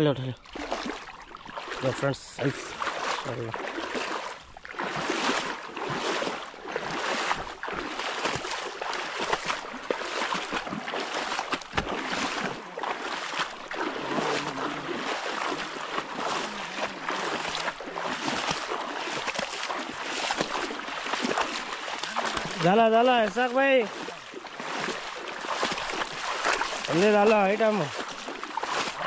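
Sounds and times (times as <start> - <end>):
footsteps wading through water: 0.0 - 29.0.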